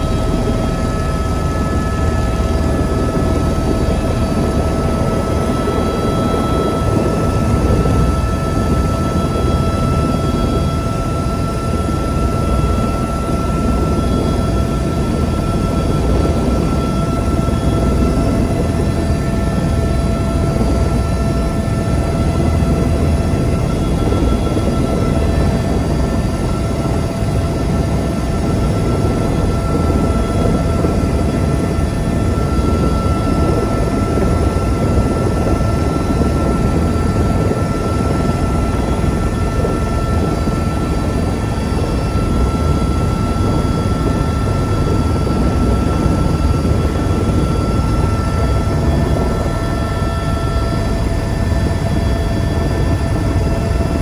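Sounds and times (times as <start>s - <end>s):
helicopter engine and rotor rumble: 0.0s - 54.0s
high engine whine: 0.0s - 54.0s.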